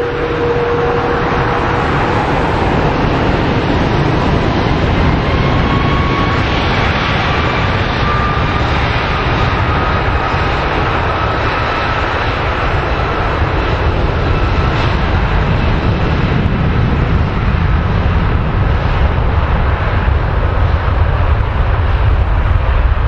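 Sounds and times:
faint high whine: 0.0s - 8.8s
jet engines roaring: 0.0s - 23.0s.

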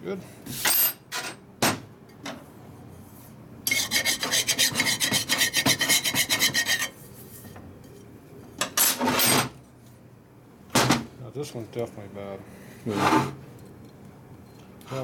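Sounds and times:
file rasping on metal: 3.7s - 7.0s.

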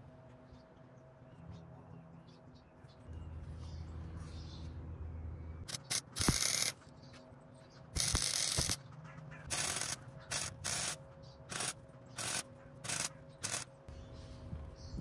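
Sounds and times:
electric welder crackling hiss: 5.7s - 6.7s, 8.0s - 8.8s, 9.5s - 13.7s.

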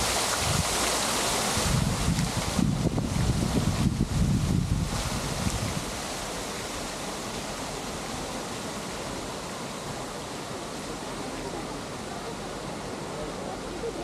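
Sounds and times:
wind buffeting microphone: 0.0s - 6.0s
outdoor hiss: 0.0s - 14.0s.

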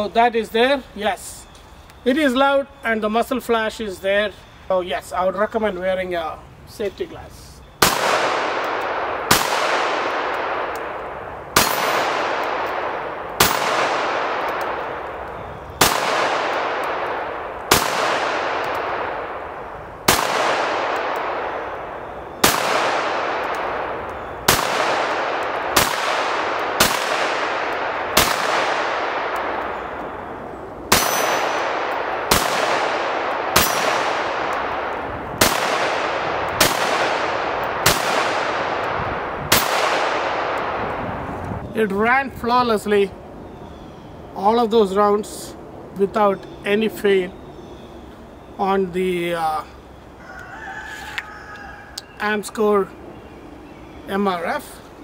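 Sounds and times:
pistol shots ringing: 7.8s - 41.0s.

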